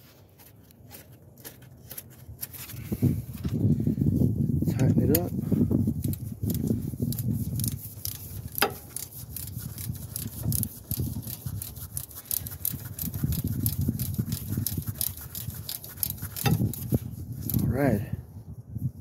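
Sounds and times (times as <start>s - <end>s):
ratchet wrench clicking: 6.0s - 17.6s.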